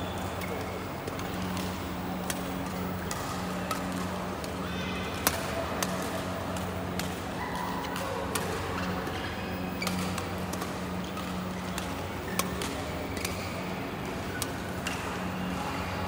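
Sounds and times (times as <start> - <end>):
rackets striking shuttlecocks: 0.3 - 7.2, 9.8 - 15.3.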